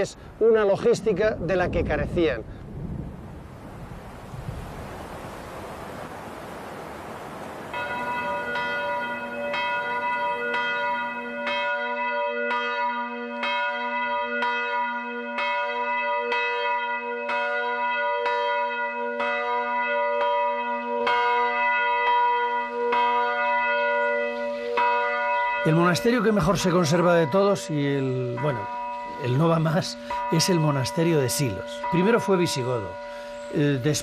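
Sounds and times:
church bells ringing: 7.6s - 34.0s.

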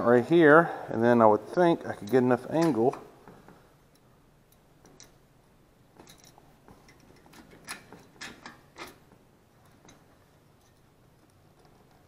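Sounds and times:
light metallic clicks and ticks: 1.9s - 5.2s.

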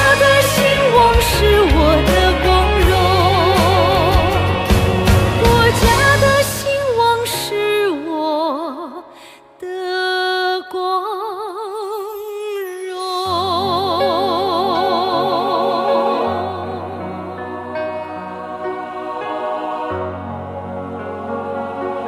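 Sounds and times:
woman singing with vibrato: 0.0s - 4.6s, 5.4s - 17.3s
orchestral accompaniment: 0.0s - 7.5s.

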